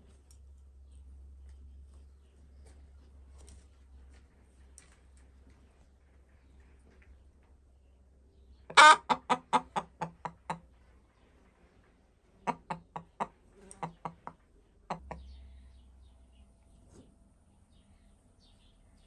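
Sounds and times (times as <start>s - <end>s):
hen clucking: 8.7s - 10.8s, 12.3s - 15.4s.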